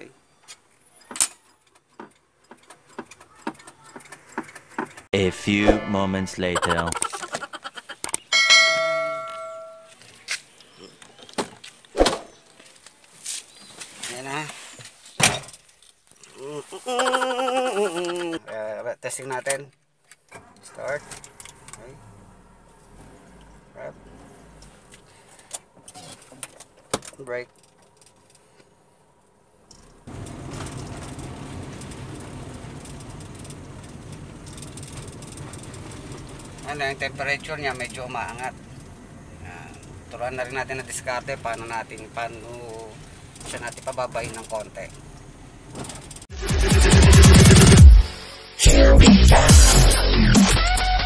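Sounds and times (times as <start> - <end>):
bright bell ding: 8.3 - 9.9
road and tyre hiss: 9.8 - 17.2, 19.9 - 46.3
car engine hum: 20.4 - 25.9, 27.7 - 47.9.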